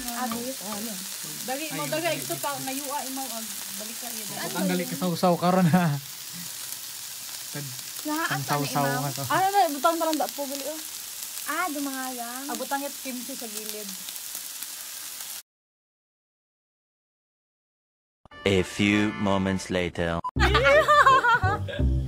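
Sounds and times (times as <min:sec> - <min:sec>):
meat sizzling on a grill pan: 0:00.0 - 0:15.4.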